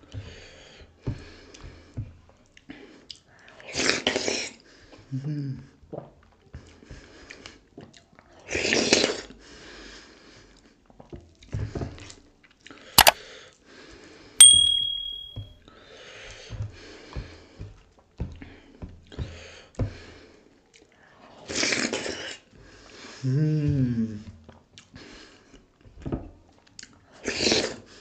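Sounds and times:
metal dish ringing: 0:14.4 - 0:15.4
sharp click: 0:14.4 - 0:15.4.

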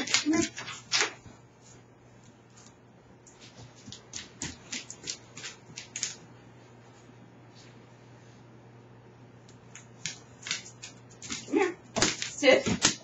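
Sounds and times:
dog nails clicking on floor: 0:00.0 - 0:01.3, 0:02.6 - 0:06.3, 0:09.6 - 0:13.0.

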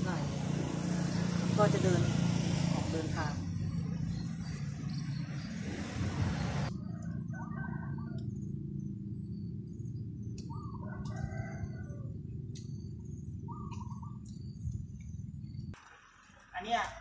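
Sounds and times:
birds calling: 0:00.2 - 0:17.0
steady low hum: 0:03.4 - 0:16.4
high bird chirps: 0:07.3 - 0:11.4, 0:12.6 - 0:15.8.

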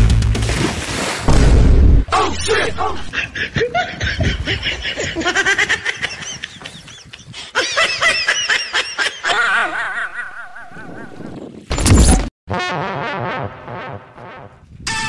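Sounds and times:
men laughing: 0:02.2 - 0:11.4.

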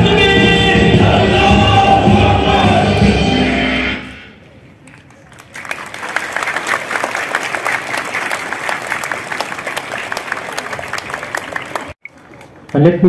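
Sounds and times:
crowd of children applauding: 0:04.9 - 0:12.8.

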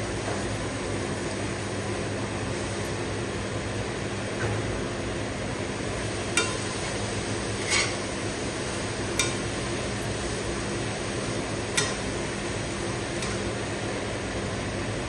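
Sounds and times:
frying hiss: 0:05.6 - 0:14.8
metal spatula clinking on pan: 0:11.7 - 0:12.0.

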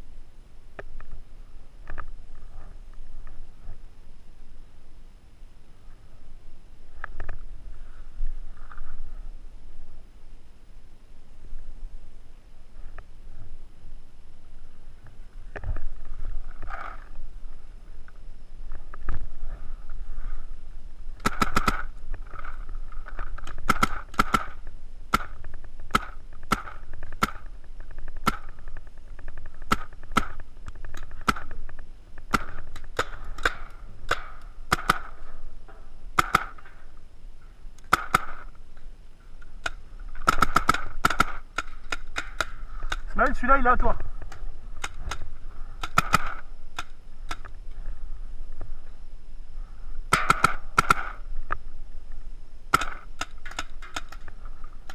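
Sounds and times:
paintball markers firing: 0:21.2 - 0:31.6, 0:32.2 - 0:35.3, 0:36.1 - 0:36.8, 0:37.8 - 0:38.6, 0:39.6 - 0:43.7, 0:44.3 - 0:47.6, 0:50.1 - 0:51.2, 0:52.7 - 0:54.9.

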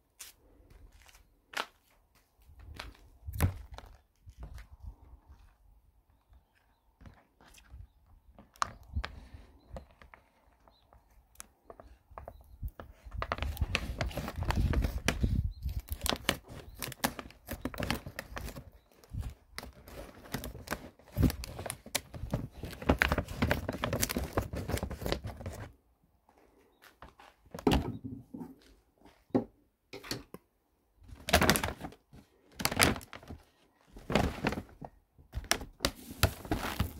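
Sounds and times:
plastic bag crinkling: 0:13.2 - 0:25.7, 0:31.1 - 0:36.9.

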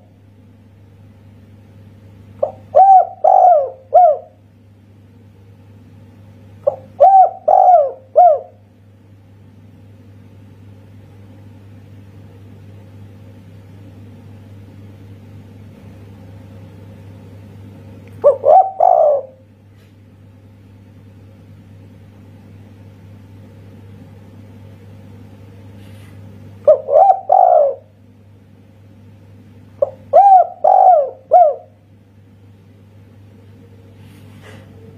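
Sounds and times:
steady low hum: 0:00.0 - 0:34.9
dove cooing: 0:02.4 - 0:04.4, 0:06.6 - 0:08.6, 0:18.1 - 0:19.5, 0:26.6 - 0:28.0, 0:29.8 - 0:31.8.

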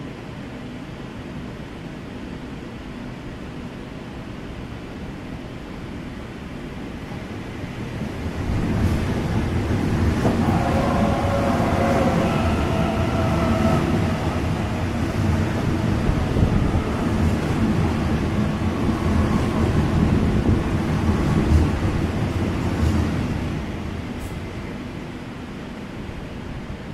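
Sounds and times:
train wheels rumbling on rails: 0:06.1 - 0:26.9.

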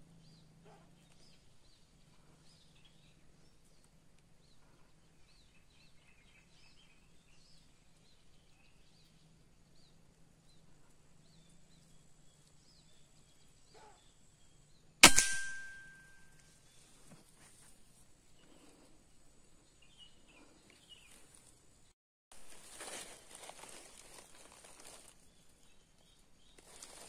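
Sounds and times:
air rifle shot: 0:15.0 - 0:16.2.

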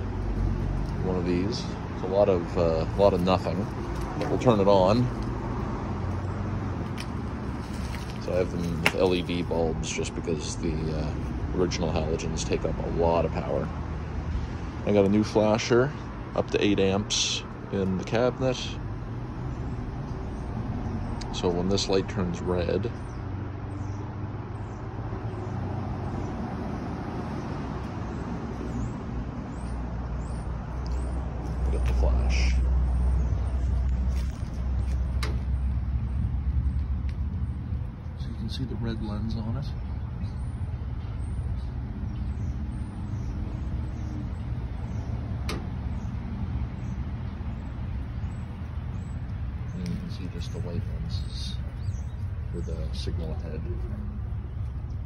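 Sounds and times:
distant road traffic: 0:00.0 - 0:55.0
low outdoor rumble: 0:00.0 - 0:55.0.

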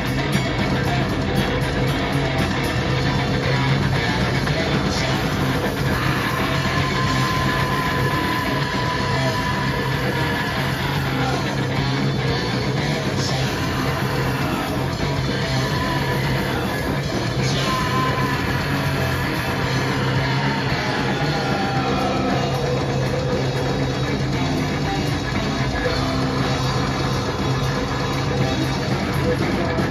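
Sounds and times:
bass guitar: 0:00.0 - 0:29.9
drums: 0:00.0 - 0:29.9
electric guitar: 0:00.0 - 0:29.9
person singing: 0:00.0 - 0:29.9.

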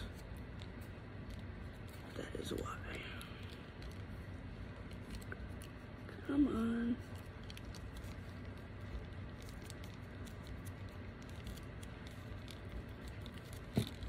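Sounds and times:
plastic bag crinkling: 0:07.0 - 0:14.0.

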